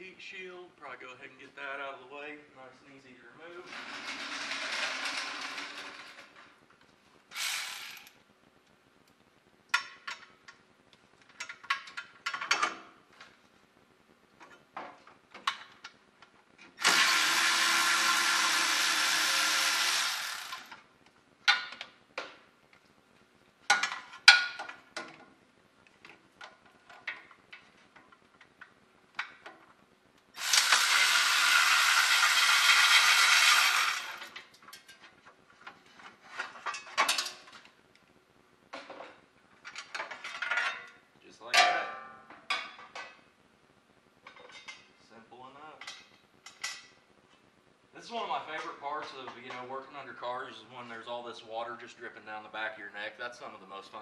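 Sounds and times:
power tool running: 7.3 - 8.1, 16.8 - 20.8, 30.4 - 34.4.

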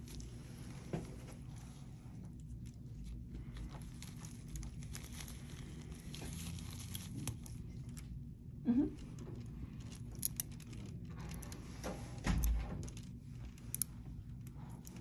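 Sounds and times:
low room hum: 0.0 - 15.0
surgical instruments clicking: 9.0 - 11.6, 12.4 - 15.0.

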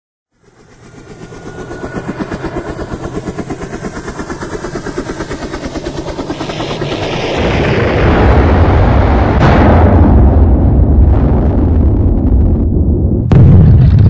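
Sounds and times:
helicopter rotor beating: 0.3 - 8.0
deep rumble: 7.5 - 14.0.

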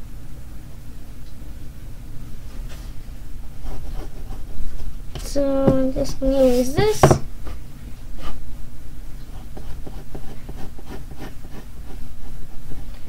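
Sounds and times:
steady low hum: 0.0 - 13.0
pencil scratching on paper: 3.6 - 4.6, 6.2 - 7.2, 9.3 - 13.0.

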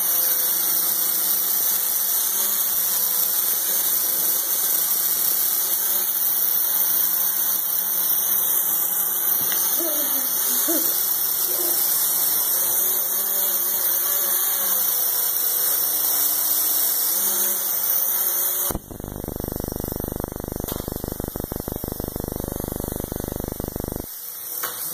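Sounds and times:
toy motor whirring: 0.0 - 24.9
rapid buzzing rattle: 18.7 - 24.2.

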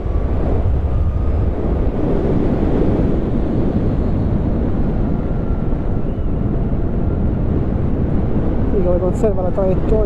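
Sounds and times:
road rumble: 0.0 - 10.0
wind rush: 0.0 - 10.0.

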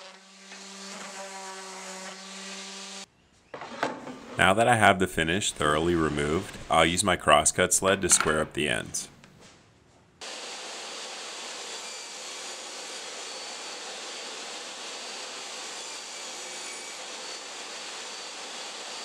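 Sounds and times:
table saw running: 10.2 - 19.0.

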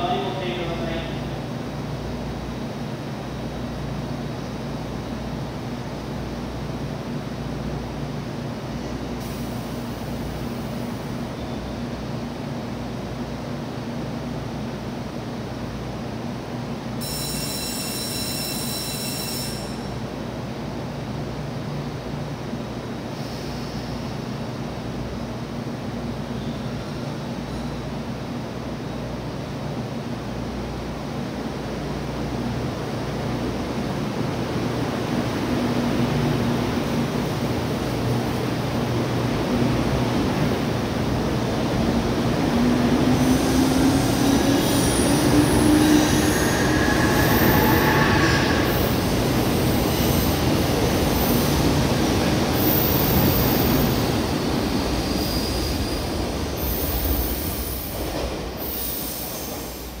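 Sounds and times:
train running noise: 16.8 - 60.0.

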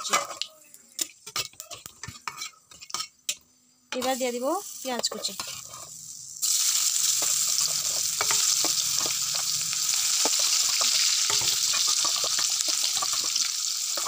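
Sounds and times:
onion sizzling in hot oil: 0.0 - 14.0
small crackles and pops: 6.6 - 14.0.

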